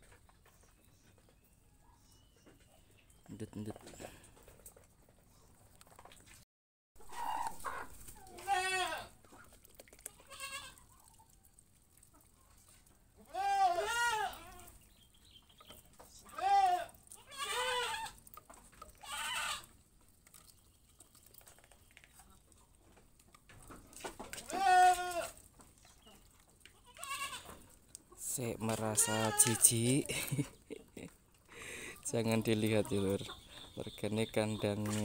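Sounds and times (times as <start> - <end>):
farm animals bleating: 7.1 - 9.2, 10.2 - 10.9, 13.2 - 14.8, 16.1 - 18.2, 18.9 - 19.7, 24.3 - 25.4, 26.7 - 30.0, 31.6 - 35.0.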